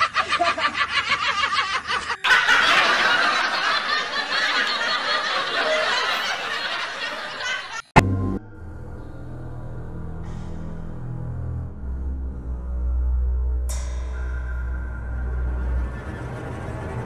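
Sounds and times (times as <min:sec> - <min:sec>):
dense laughter: 0:00.0 - 0:07.9.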